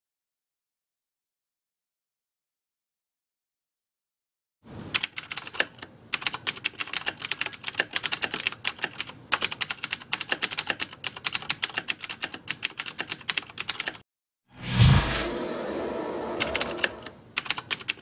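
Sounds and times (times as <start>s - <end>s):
computer keyboard typing: 4.9s - 14.0s, 16.4s - 18.0s.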